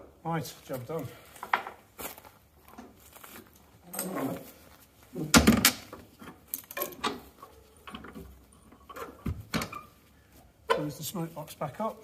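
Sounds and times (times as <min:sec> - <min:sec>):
metal clinks and rattles: 0:03.4 - 0:04.4, 0:06.3 - 0:09.1.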